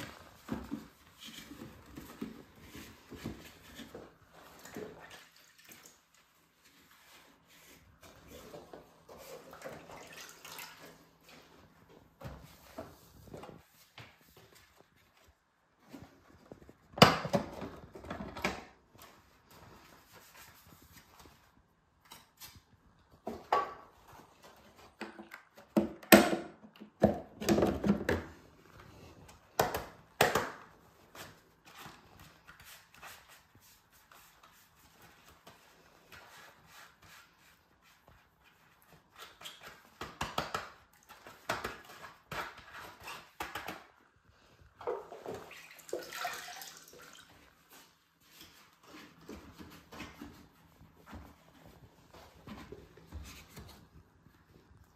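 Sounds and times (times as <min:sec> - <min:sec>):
water splashing in a bucket: 0:09.4 - 0:11.0, 0:45.3 - 0:47.4.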